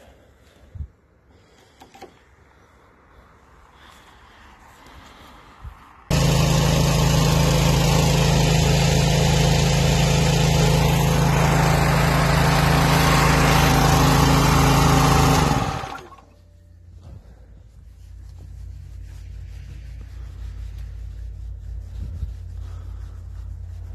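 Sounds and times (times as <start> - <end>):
air compressor engine drone: 6.1 - 23.9.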